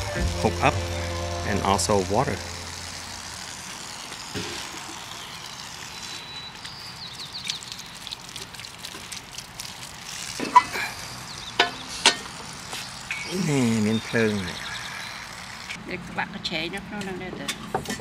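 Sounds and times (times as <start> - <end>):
water splashing from tap: 6.6 - 11.9.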